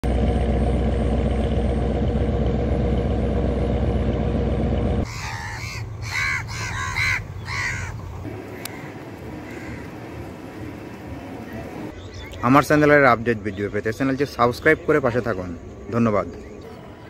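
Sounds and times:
loud low rumble: 0.0 - 5.1
crows cawing: 5.0 - 10.4.

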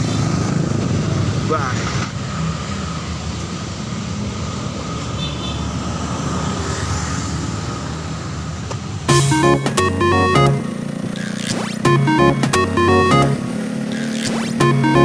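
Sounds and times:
street traffic rumble: 0.0 - 9.1
electronic background music: 9.1 - 10.7, 11.3 - 15.0
high chirping tone: 9.1 - 10.7, 11.8 - 15.0.

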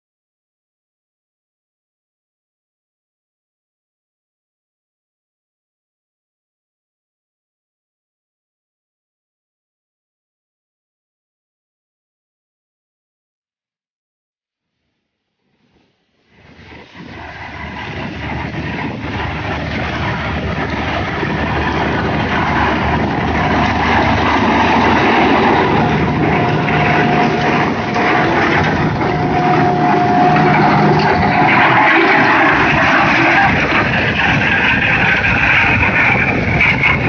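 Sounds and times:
thin steady whine: 15.5 - 37.0
tractor diesel engine under load: 16.4 - 37.0.

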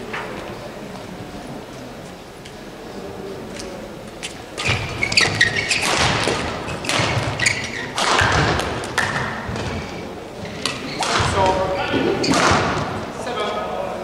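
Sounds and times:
feet thudding and squeaking on court: 4.6 - 13.0
rackets hitting shuttlecock: 4.6 - 13.1.

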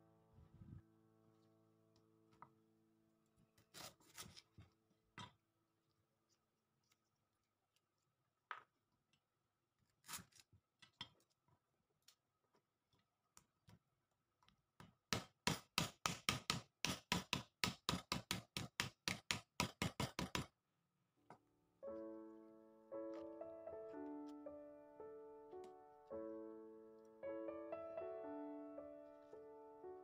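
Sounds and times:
knife chopping on wooden board: 15.1 - 20.5.

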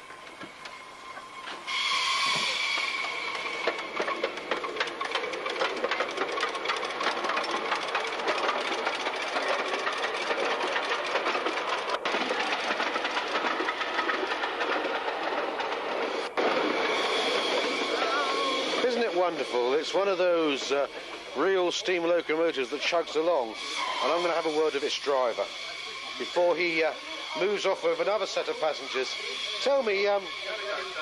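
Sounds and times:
steam locomotive chugging: 0.0 - 31.0
steam whistle: 0.6 - 4.0, 16.4 - 20.6, 23.4 - 31.0.

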